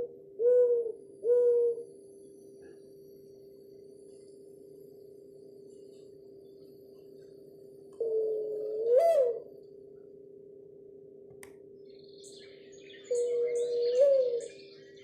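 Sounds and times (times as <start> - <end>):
mourning dove cooing: 0.0 - 2.0, 8.0 - 9.6, 13.0 - 14.8
steady low hum: 0.0 - 15.0.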